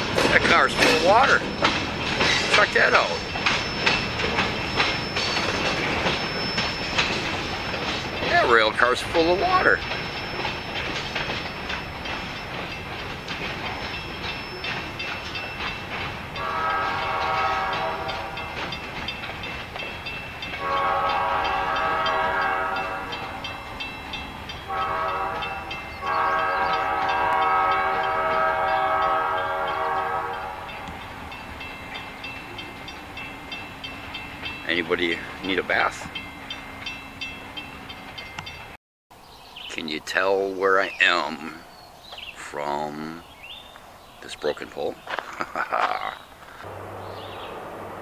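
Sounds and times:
train wheels clicking on rails: 0:00.0 - 0:38.8
locomotive air horn blasts: 0:16.4 - 0:18.4, 0:20.6 - 0:23.4, 0:24.7 - 0:30.7.

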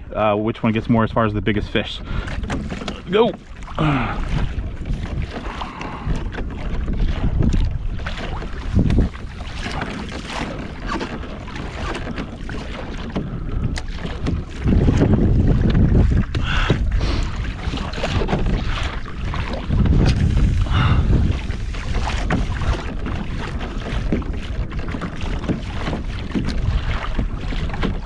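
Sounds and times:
water splashing along hull: 0:00.0 - 0:28.0
wind buffeting microphone: 0:00.0 - 0:28.0.

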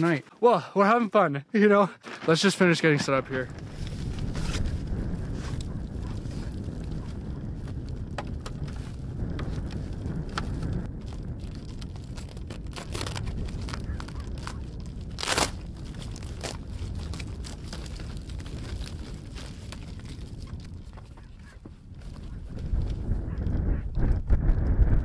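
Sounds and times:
foil duct crinkling: 0:03.6 - 0:22.9.

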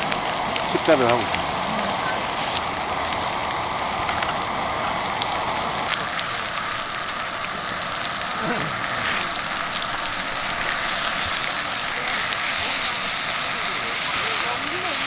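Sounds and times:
pork sizzling on griddle pan: 0:00.0 - 0:15.0.

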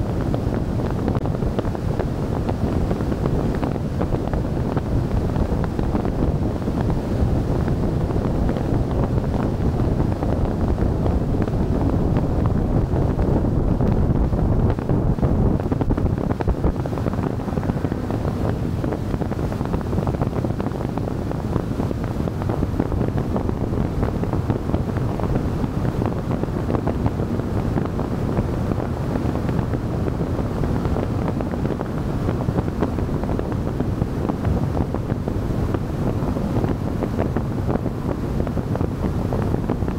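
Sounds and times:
wind buffeting microphone: 0:00.0 - 0:39.9
road noise: 0:02.7 - 0:33.6.

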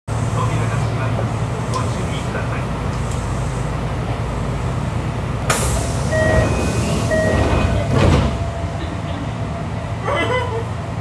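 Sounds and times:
train equipment hum: 0:00.1 - 0:11.0
hiss of released air: 0:05.5 - 0:07.1.

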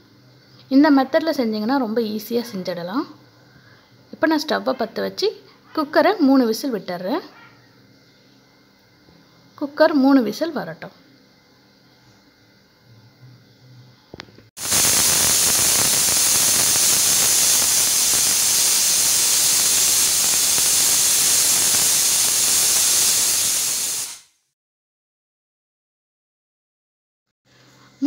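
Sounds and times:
pressure cooker steam hissing: 0:14.6 - 0:24.3.

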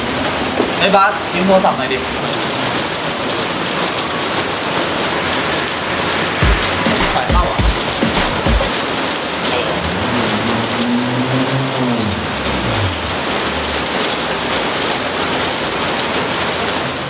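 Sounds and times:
loud rain-like hiss: 0:00.0 - 0:10.4
faint low tone sliding down: 0:09.8 - 0:14.4.

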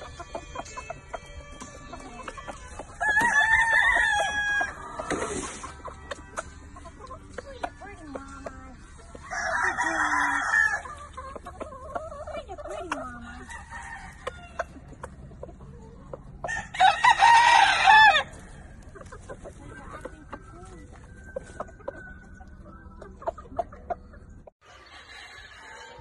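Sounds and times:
rooster crowing: 0:03.0 - 0:04.8, 0:09.3 - 0:10.8, 0:16.4 - 0:18.3.

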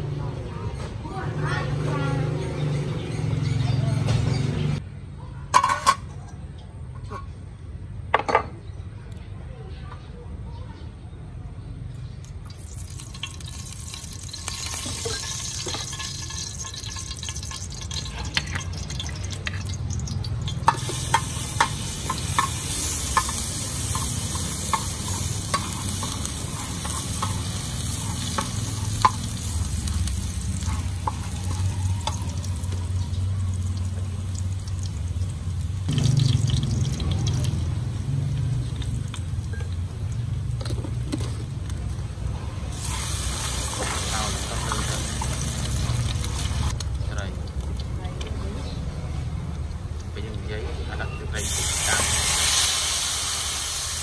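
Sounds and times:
garlic sizzling in oil: 0:12.2 - 0:50.2, 0:51.0 - 0:54.0.

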